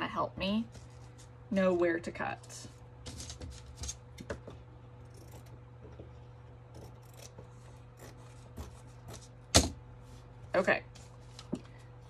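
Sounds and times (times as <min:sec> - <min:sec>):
scissors snipping fabric: 0:06.8 - 0:07.4.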